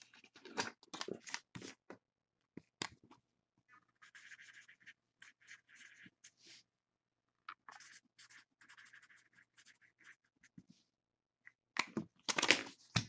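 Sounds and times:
marker scratching on paper: 3.7s - 6.6s, 7.6s - 10.6s.

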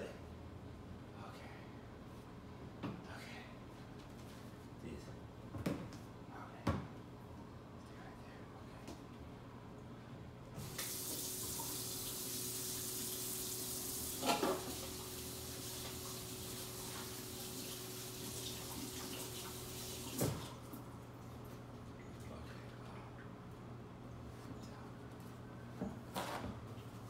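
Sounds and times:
faucet water running into sink: 10.6s - 20.8s.

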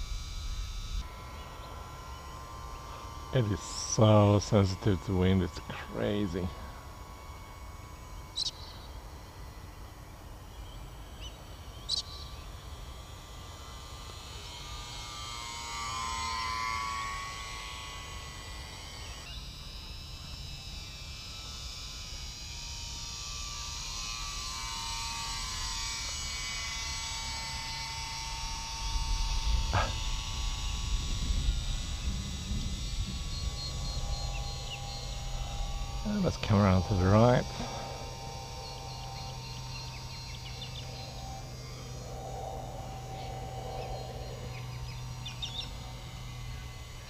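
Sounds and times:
model plane motor whining: 0.0s - 47.0s
wind buffeting microphone: 28.8s - 37.2s.

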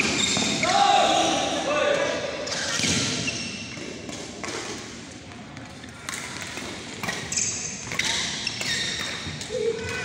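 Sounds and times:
badminton rackets hitting shuttlecocks: 6.1s - 10.0s.

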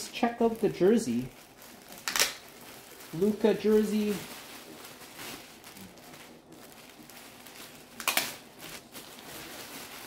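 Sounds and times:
plastic bag crinkling: 0.0s - 10.0s.

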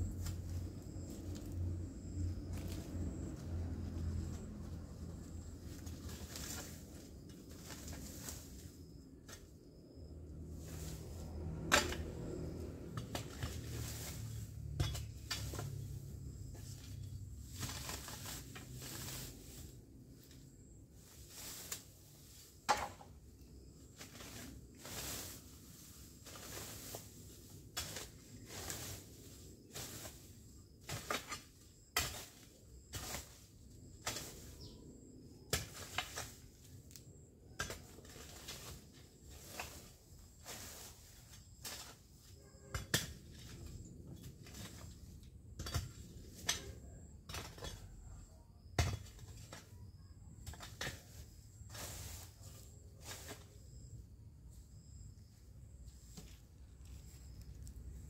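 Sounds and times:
low steady rumble: 0.0s - 8.6s
crackles and rustles of weeds: 0.0s - 48.3s, 49.0s - 58.0s
faint outdoor background: 0.0s - 58.0s.

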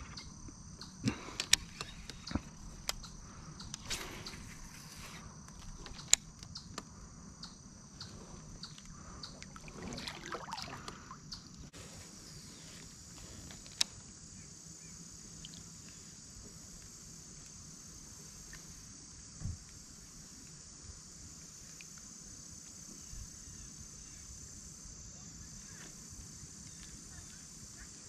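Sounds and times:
insect chorus: 0.0s - 28.0s.

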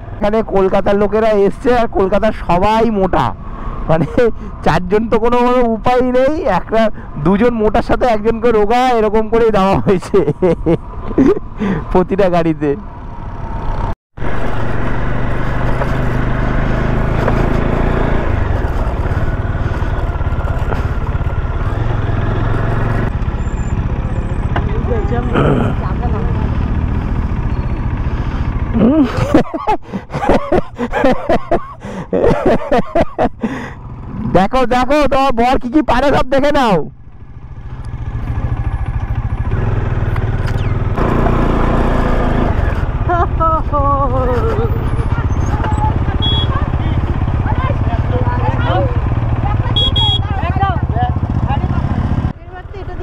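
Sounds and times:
road noise: 0.0s - 53.0s
motorcycle engine running: 12.9s - 29.4s, 36.0s - 53.0s.

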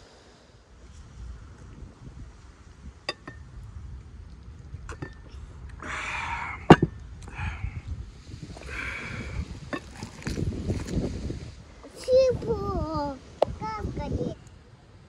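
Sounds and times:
breathy exhale: 5.8s - 6.7s, 7.3s - 9.7s.

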